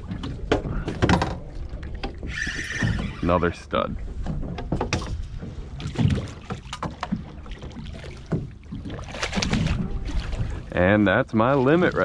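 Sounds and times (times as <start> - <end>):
water washing: 0.0 - 3.5, 5.6 - 12.0
fish thrashing and splashing: 5.7 - 10.8.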